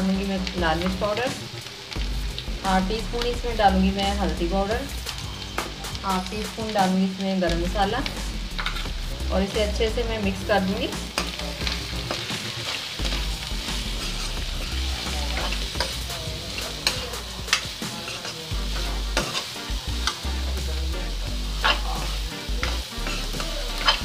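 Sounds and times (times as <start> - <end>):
frying sizzle: 0.0 - 24.0
spatula scraping pan: 12.1 - 18.5, 19.1 - 20.2, 21.5 - 24.0.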